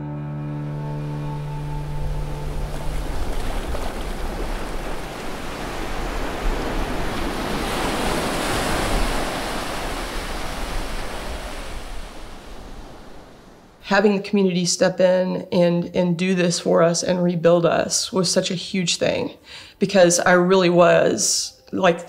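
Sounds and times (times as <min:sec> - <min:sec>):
surf washing onto beach: 0:01.6 - 0:13.8
wind rumbling on microphone: 0:01.8 - 0:13.8.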